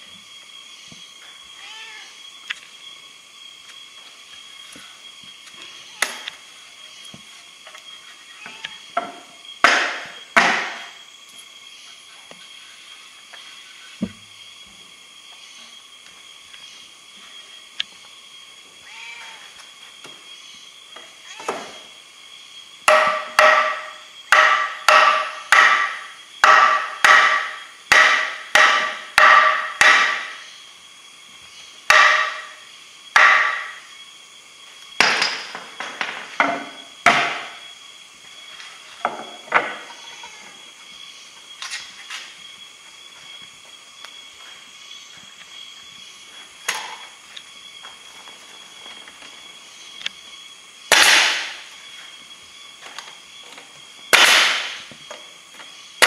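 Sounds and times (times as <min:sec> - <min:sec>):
hammer striking wooden box: 0:09.0 - 0:10.8, 0:22.9 - 0:30.3, 0:31.9 - 0:32.5, 0:33.2 - 0:33.7.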